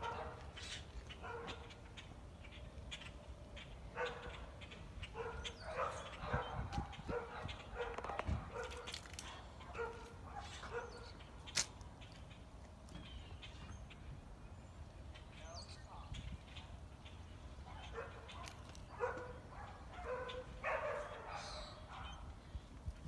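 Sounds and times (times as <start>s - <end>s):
dog barking: 0.0s - 0.5s, 1.2s - 1.8s, 3.9s - 4.5s, 5.1s - 11.2s, 17.7s - 22.3s.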